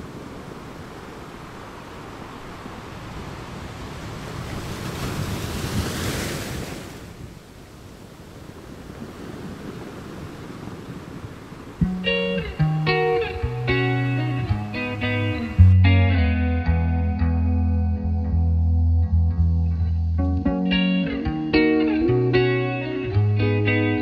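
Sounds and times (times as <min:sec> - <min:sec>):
wind and road noise: 0:00.0 - 0:15.8.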